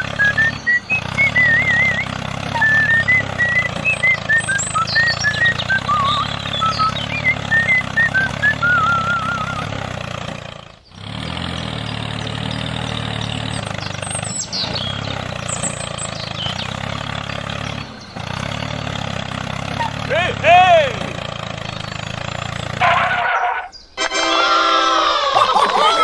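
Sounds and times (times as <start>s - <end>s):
high whistling chirps: 0.0s - 9.8s, 13.3s - 16.8s
tractor engine running: 0.0s - 26.0s.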